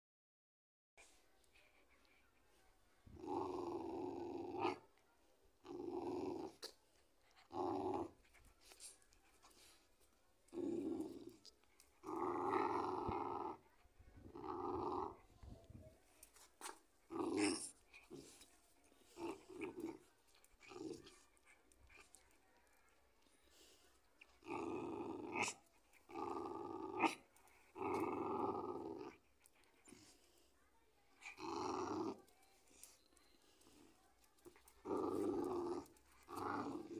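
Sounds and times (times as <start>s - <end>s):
dog growling: 3.1s - 4.9s, 5.6s - 8.5s, 10.5s - 23.0s, 24.2s - 30.2s, 31.2s - 33.0s, 34.4s - 36.9s.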